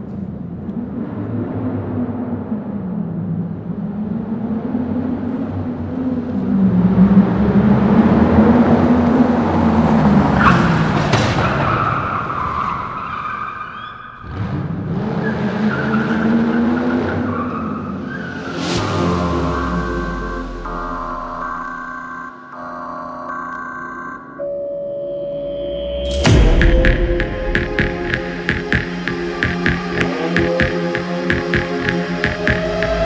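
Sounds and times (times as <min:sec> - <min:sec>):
engine revving: 0:26.1 - 0:33.0.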